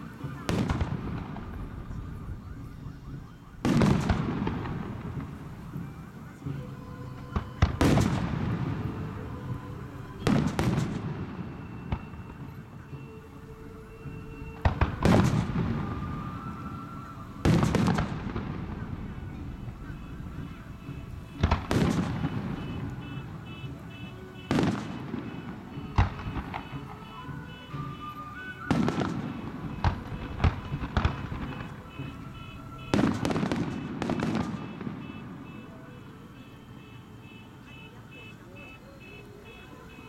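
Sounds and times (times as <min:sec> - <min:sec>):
firework shells booming: 0:03.6 - 0:05.8, 0:14.6 - 0:16.2, 0:17.4 - 0:27.1, 0:27.8 - 0:35.6.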